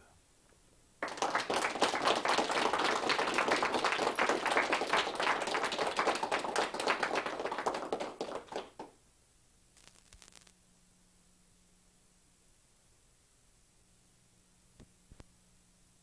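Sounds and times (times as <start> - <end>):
audience applauding: 1.0 - 8.9.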